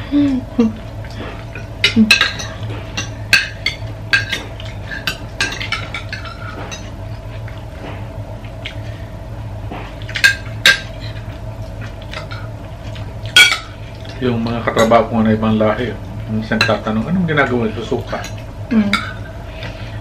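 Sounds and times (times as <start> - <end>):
steady low hum: 0.0 - 20.0
cutlery clinking on plates: 1.2 - 6.9.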